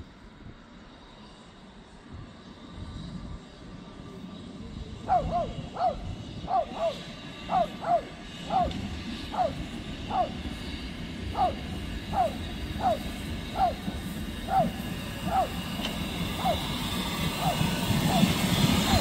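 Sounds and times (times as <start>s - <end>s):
steam train rumble: 0.0s - 19.0s
dog barking: 5.1s - 8.7s, 9.3s - 10.4s, 11.4s - 13.9s, 14.5s - 15.6s.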